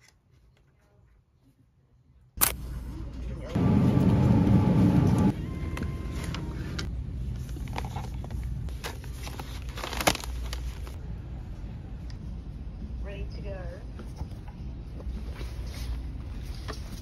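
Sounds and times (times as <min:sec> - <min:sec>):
plastic package crackling: 0:09.0 - 0:11.0.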